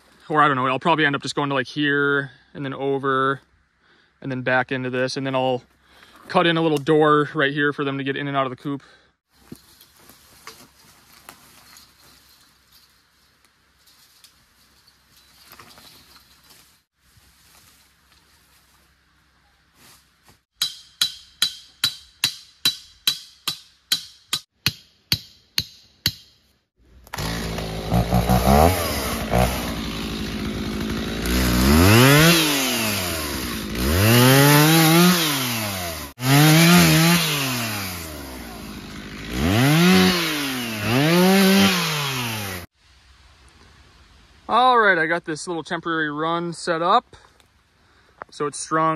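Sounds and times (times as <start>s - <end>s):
chainsaw revving and cutting: 27.1s - 42.7s.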